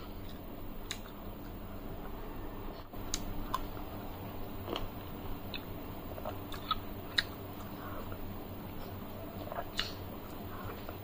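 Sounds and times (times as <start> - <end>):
wet mouth clicks and smacks: 5.5 - 7.8, 9.5 - 10.0.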